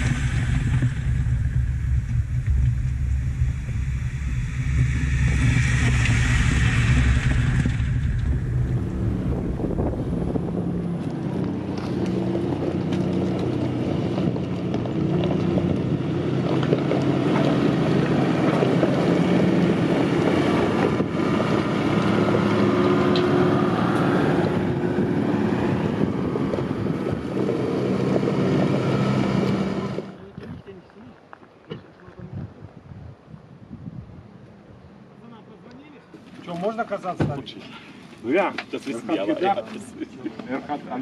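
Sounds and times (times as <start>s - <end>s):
vehicle engine running: 0.0s - 30.3s
wind buffeting microphone: 0.0s - 31.2s, 31.8s - 35.0s.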